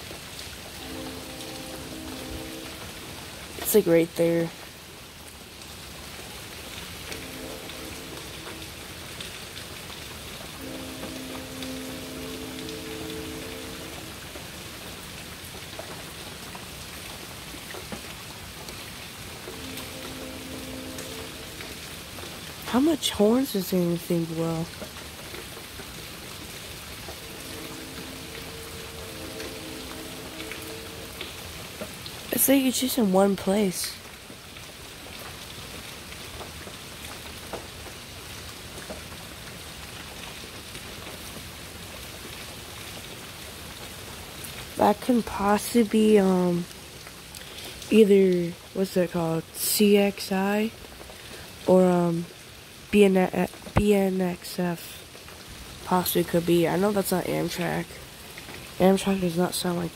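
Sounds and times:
steady rain falling: 0.0s - 59.9s
distant train horn: 0.7s - 3.6s, 7.0s - 9.4s, 10.5s - 15.0s, 19.5s - 22.3s, 26.6s - 31.9s.

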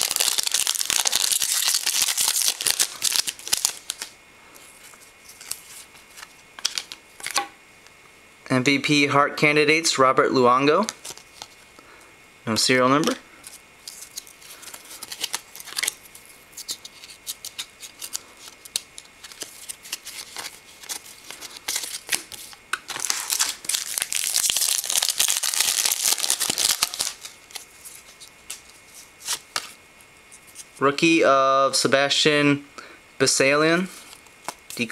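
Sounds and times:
card pack wrapper crinkling and tearing: 0.0s - 4.2s, 5.2s - 7.4s, 10.8s - 11.6s, 13.0s - 29.8s
trading cards being handled: 0.0s - 7.5s, 10.8s - 11.7s, 12.9s - 30.8s.

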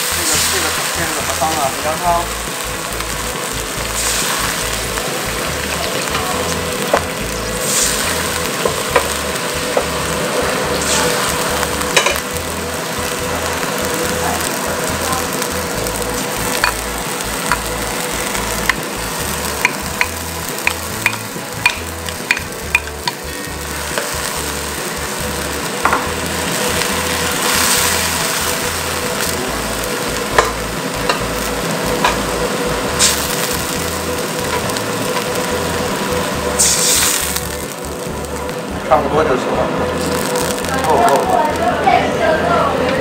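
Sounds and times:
food sizzling in hot oil: 0.0s - 43.0s
spoon tapping a wok: 16.6s - 16.8s, 19.6s - 23.2s, 25.8s - 26.1s.

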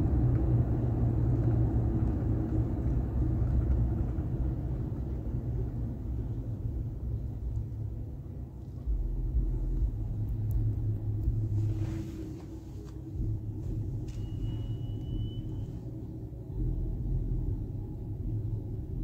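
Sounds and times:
traffic passing outside: 0.0s - 19.0s
vehicle idling rumble: 0.0s - 19.0s.

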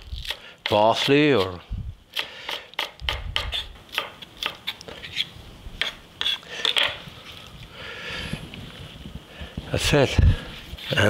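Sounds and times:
knife chopping on wooden board: 2.2s - 4.7s.

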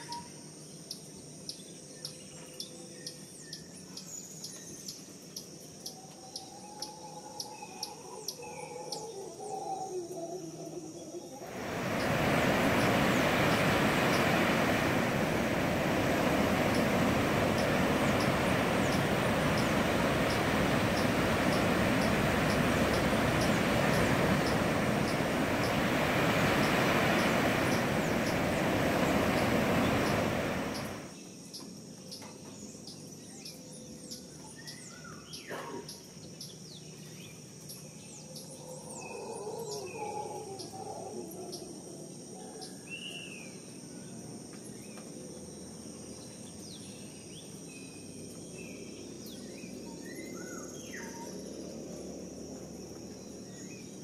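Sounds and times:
loud steady rushing noise: 11.4s - 31.1s.

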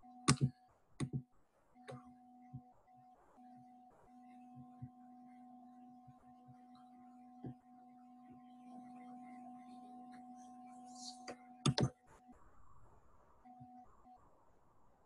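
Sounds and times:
computer mouse clicks: 0.3s - 1.2s, 11.6s - 12.0s.

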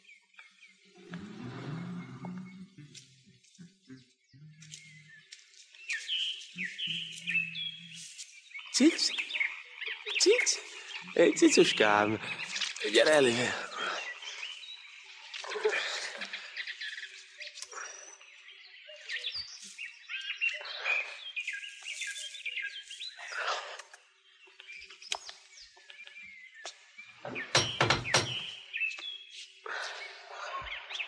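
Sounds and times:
garden birds chirping: 0.0s - 31.0s
knocks on wooden door: 27.3s - 28.5s.

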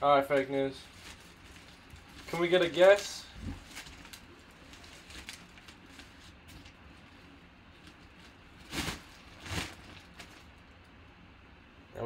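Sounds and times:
nylon bag rustling: 0.8s - 10.6s.

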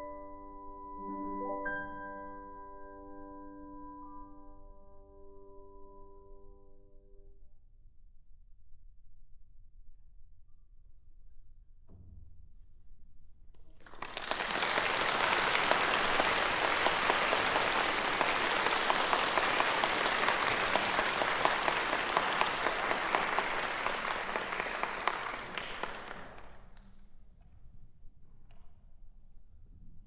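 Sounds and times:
audience applauding: 13.8s - 26.8s.

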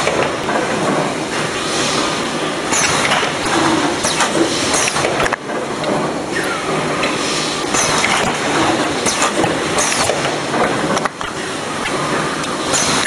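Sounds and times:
packing machine clatter: 0.0s - 13.0s
machine hissing swish: 6.3s - 10.2s.

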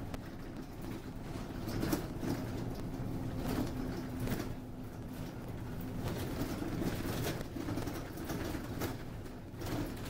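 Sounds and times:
bus engine and road rumble: 0.0s - 10.0s.

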